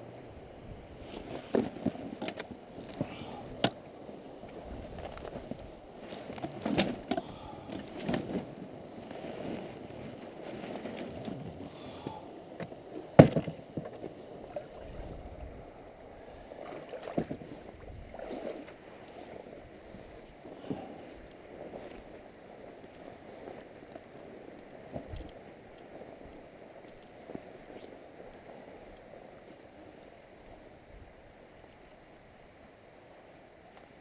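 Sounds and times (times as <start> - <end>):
oars splashing in water: 16.4 - 29.8.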